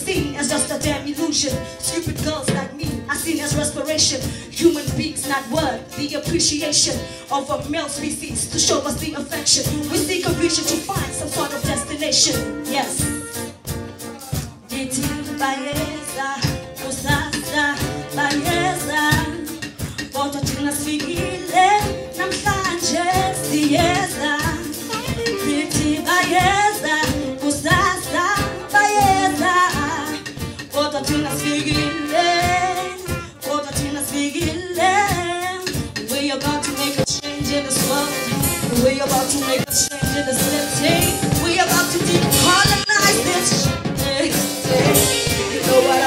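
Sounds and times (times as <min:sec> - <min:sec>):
woman singing into a microphone: 0:00.0 - 0:13.3, 0:14.7 - 0:46.0
drum kit beat: 0:00.0 - 0:46.0
saxophone: 0:10.0 - 0:19.9, 0:20.5 - 0:34.8, 0:35.7 - 0:46.0
electric guitars: 0:39.9 - 0:46.0.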